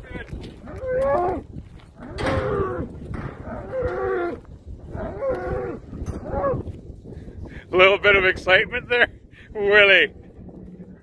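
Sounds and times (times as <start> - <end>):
bull bellowing: 2.0 - 6.6.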